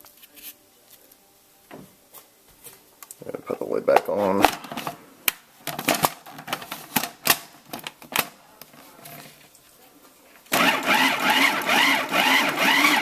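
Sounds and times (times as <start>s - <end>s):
food processor motor running: 10.6s - 13.0s.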